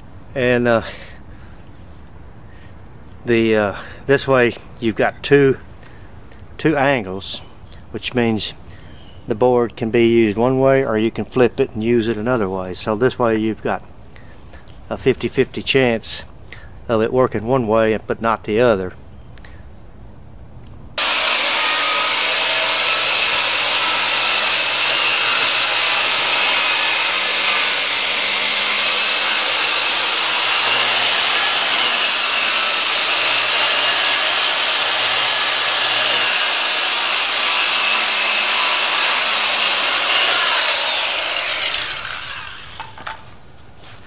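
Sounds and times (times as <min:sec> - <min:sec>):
circular saw cutting wood: 0:21.0 - 0:43.2.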